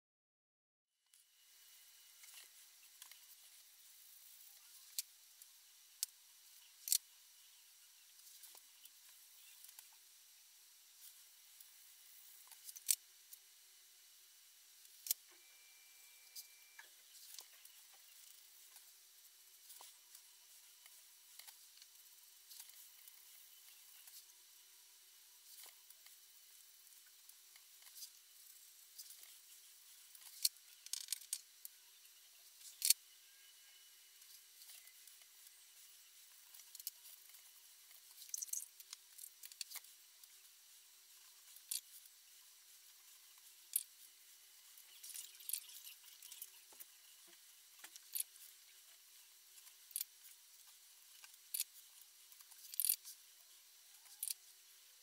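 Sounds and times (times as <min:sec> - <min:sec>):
small tool clicks and ticks: 0:06.8 - 0:07.1, 0:12.5 - 0:13.0, 0:14.9 - 0:15.4, 0:30.1 - 0:31.5, 0:32.6 - 0:33.0, 0:37.9 - 0:39.9, 0:45.0 - 0:46.9, 0:47.8 - 0:48.4, 0:49.6 - 0:51.8, 0:52.4 - 0:53.2, 0:54.0 - 0:54.4.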